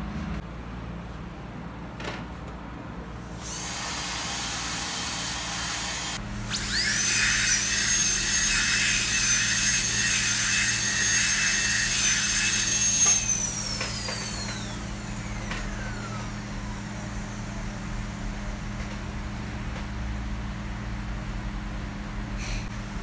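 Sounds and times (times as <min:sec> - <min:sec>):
dental drill whining: 0:03.4 - 0:18.1.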